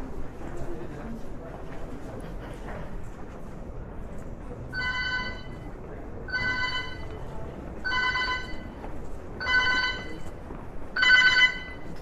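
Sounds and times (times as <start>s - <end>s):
electronic ringing alert tone: 6.3s - 7.1s, 7.9s - 8.7s, 9.4s - 10.2s, 11.0s - 11.8s.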